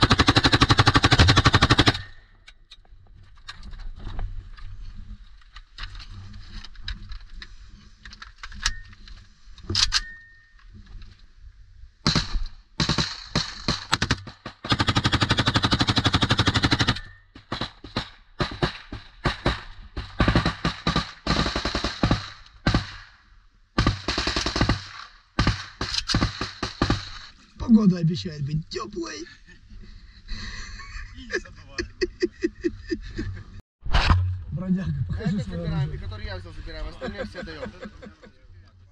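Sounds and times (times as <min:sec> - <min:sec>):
automatic rifle fire: 0:12.1 - 0:23.0, 0:23.8 - 0:27.3.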